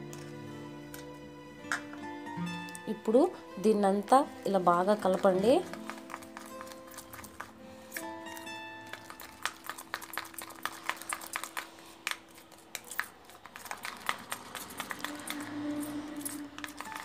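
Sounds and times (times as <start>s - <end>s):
spoon stirring paste in a bowl: 4.0s - 17.0s.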